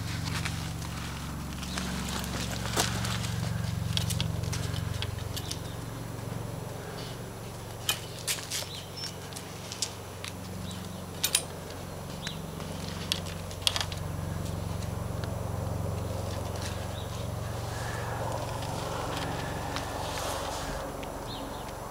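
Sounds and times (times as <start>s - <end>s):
steady low hum: 0.0s - 21.9s
metallic clicks and clinks: 7.8s - 9.2s, 11.1s - 12.4s.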